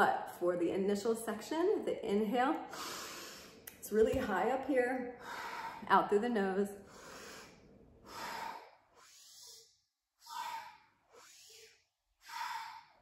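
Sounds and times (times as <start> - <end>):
woman breathing deeply through nose: 2.7 - 3.6, 5.2 - 5.9, 6.8 - 13.0.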